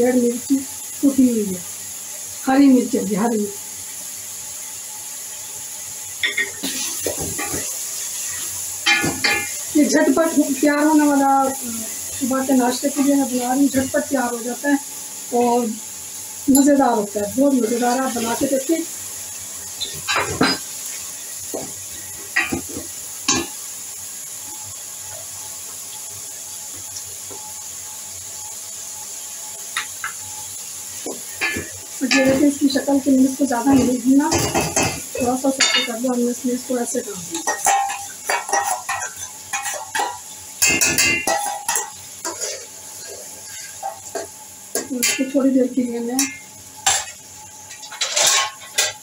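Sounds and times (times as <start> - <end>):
onions sizzling: 0.0 - 49.0
wooden spatula scraping pot: 41.3 - 44.3.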